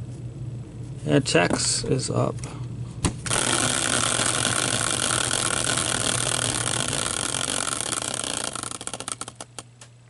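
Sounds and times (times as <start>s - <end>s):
wheel clicks slowing: 3.3s - 9.6s
spinning wheel whirring and rattling: 3.3s - 9.7s.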